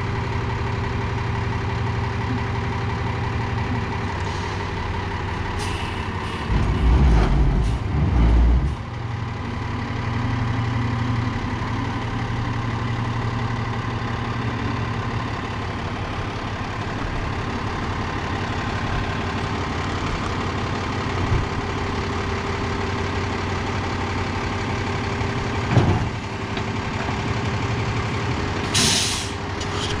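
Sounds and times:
diesel engine running: 0.0 - 30.0
short hiss: 28.7 - 29.4.

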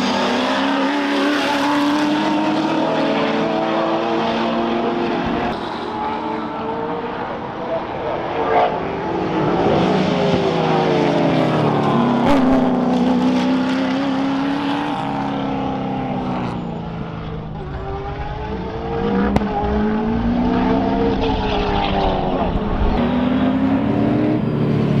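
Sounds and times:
race car engines revving: 0.0 - 25.0.

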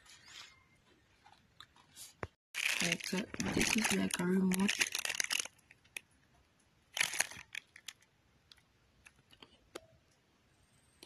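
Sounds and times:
plastic bag crinkling: 2.6 - 6.1, 6.9 - 8.1.

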